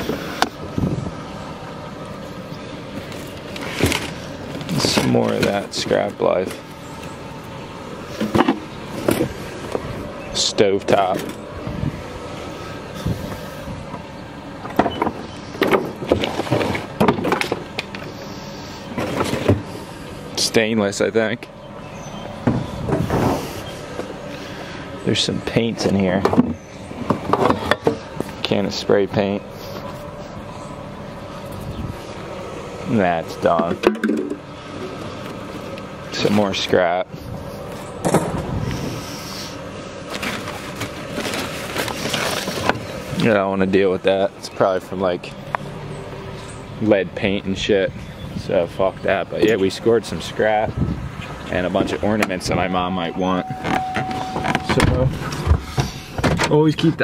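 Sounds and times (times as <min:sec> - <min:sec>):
papers rustling: 0:40.1 - 0:42.9
things scraping against plastic bin: 0:40.1 - 0:42.9.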